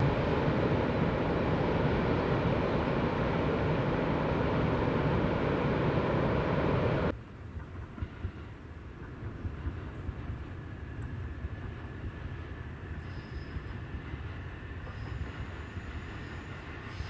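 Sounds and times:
distant electric train pulling away: 8.0 - 17.0.

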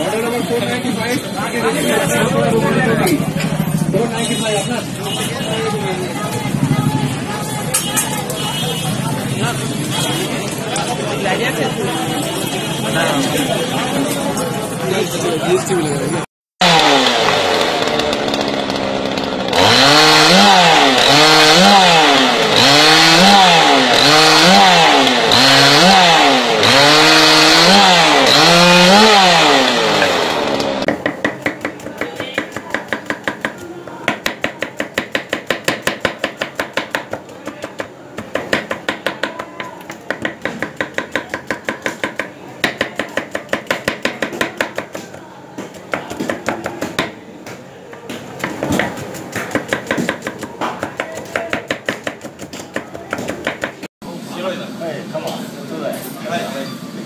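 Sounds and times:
chainsaw revving: 16.6 - 30.9
knife chopping on a board: 30.8 - 53.9.

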